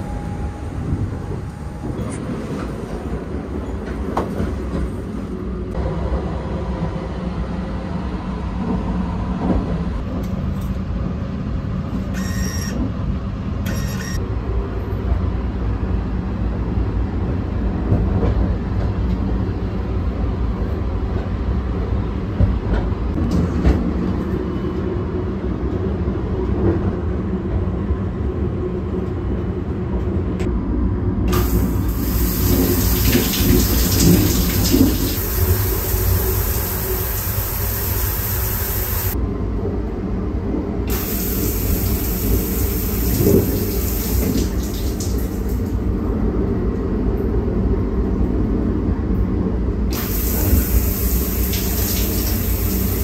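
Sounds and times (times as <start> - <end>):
train rumble: 0.0 - 53.0
short electronic beeps: 12.1 - 12.8, 13.7 - 14.2.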